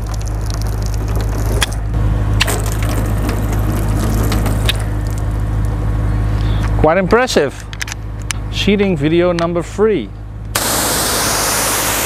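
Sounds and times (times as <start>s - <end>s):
water spraying on car: 2.4s - 5.6s, 10.6s - 12.0s.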